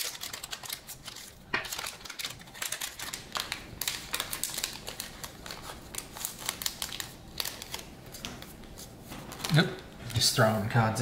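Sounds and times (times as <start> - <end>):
trading cards clicking and snapping: 0.0 - 8.5.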